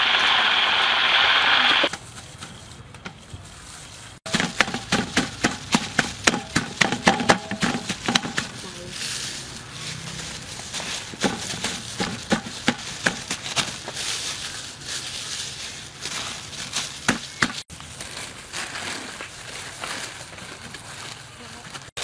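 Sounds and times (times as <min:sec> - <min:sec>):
plastic crinkling and rustling: 0:01.9 - 0:22.0.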